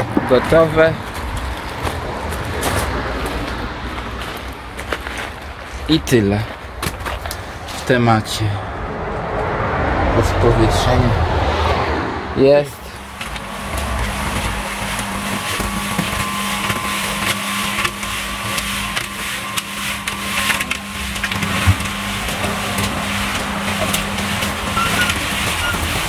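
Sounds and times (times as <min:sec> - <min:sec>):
cement mixer humming: 0:12.3 - 0:26.0.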